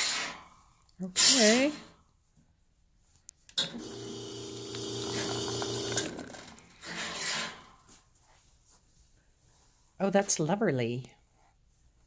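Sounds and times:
espresso machine pump and spray: 0:03.7 - 0:06.5.

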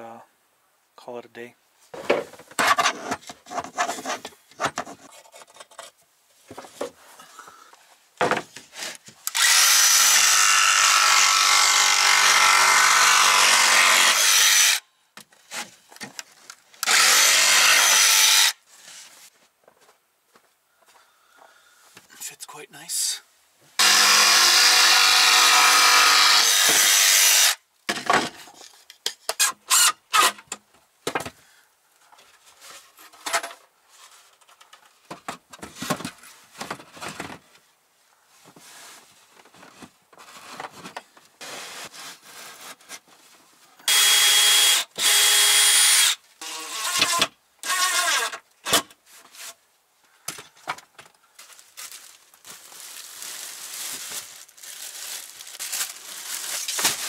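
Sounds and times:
boards and tools clattering: 0:02.0 - 0:07.0, 0:08.2 - 0:09.2
jigsaw cutting plywood: 0:09.3 - 0:14.8, 0:16.8 - 0:18.6, 0:23.8 - 0:27.6, 0:43.9 - 0:48.3.

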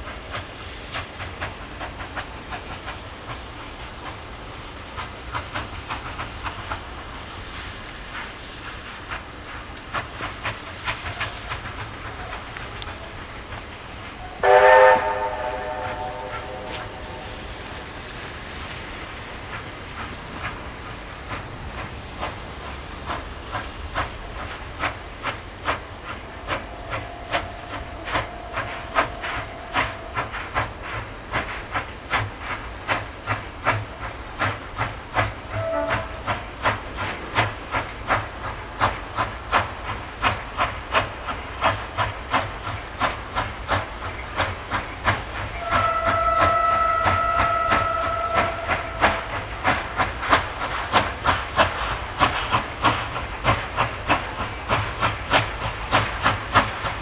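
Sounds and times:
low train rumble: 0:00.0 - 0:57.0
steam locomotive exhaust beats: 0:00.0 - 0:57.0
steam whistle: 0:14.2 - 0:17.2, 0:35.5 - 0:36.3, 0:45.6 - 0:49.3.

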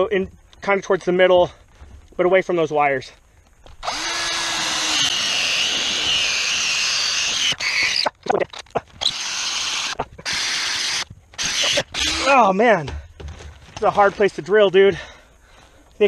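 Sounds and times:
power drill boring into wood: 0:03.8 - 0:08.1, 0:09.0 - 0:12.4.

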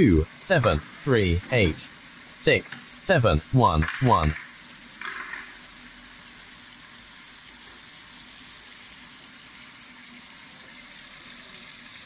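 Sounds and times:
water and rice pouring into tank: 0:04.4 - 0:12.0.

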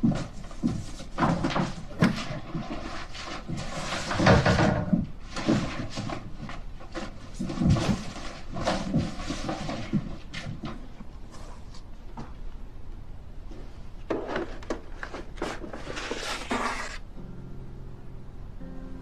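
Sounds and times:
paper and cardboard rustling: 0:00.0 - 0:11.9, 0:14.1 - 0:17.0.

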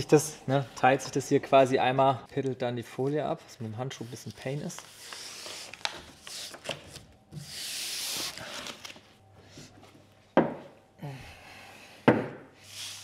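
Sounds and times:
vinyl film rustling: 0:02.2 - 0:07.2, 0:08.1 - 0:09.2.

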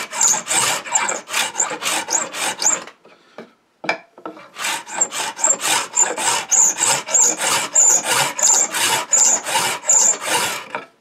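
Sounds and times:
steel cutter scraping wood: 0:00.0 - 0:02.9, 0:04.4 - 0:10.8
high squeaks: 0:00.1 - 0:02.8, 0:04.9 - 0:10.5.

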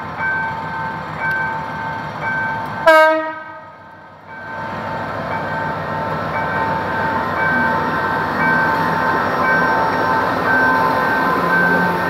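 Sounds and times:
train horn blast: 0:02.8 - 0:03.7.

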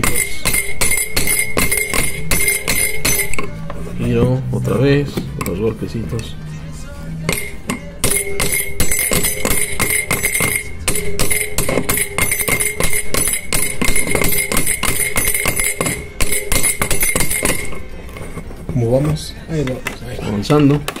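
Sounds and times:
hammer tapping on steel wrench: 0:00.0 - 0:03.6, 0:07.3 - 0:17.8.

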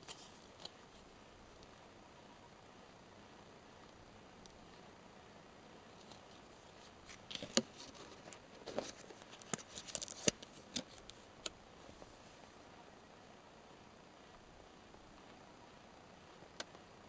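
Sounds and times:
paper rustling: 0:06.0 - 0:11.3.

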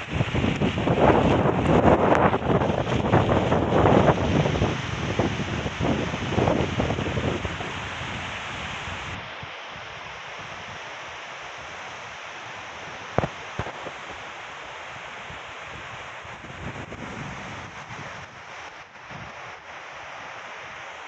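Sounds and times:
wind buffeting microphone: 0:00.0 - 0:09.3, 0:12.5 - 0:14.3, 0:14.9 - 0:19.6
wind rushing through treetops: 0:00.0 - 0:21.0.

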